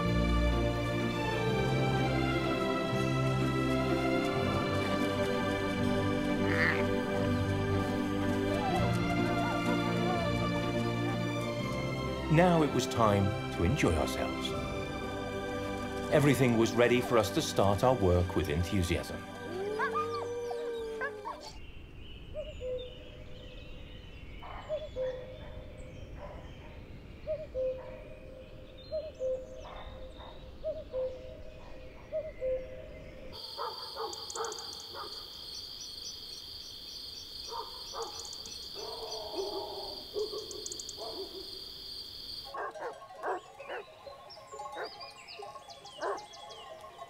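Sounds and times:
animal calls: 6.3 - 7.3, 19.3 - 21.6, 33.4 - 35.3, 37.5 - 41.6, 42.4 - 46.9.

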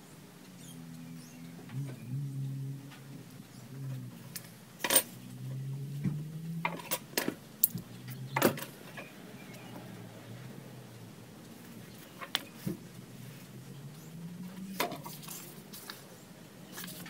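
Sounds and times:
low steady hum: 0.0 - 17.0
metal parts clinking on wood: 4.8 - 5.1.

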